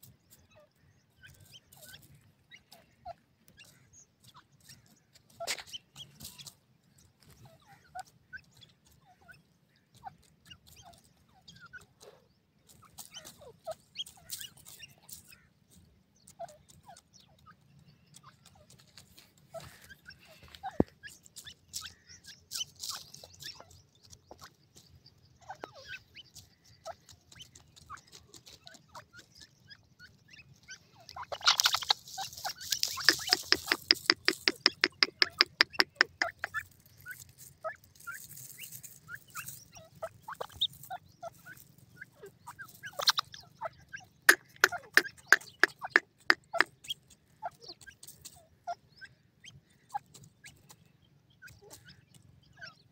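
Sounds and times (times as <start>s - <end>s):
bird rapid clucking calls: 0.0s - 52.9s
single short bird notes and clicks: 31.1s - 36.7s, 44.3s - 47.1s.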